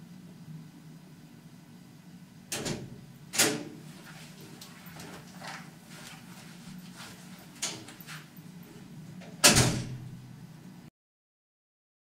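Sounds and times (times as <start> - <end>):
door thud: 9.4 - 10.1.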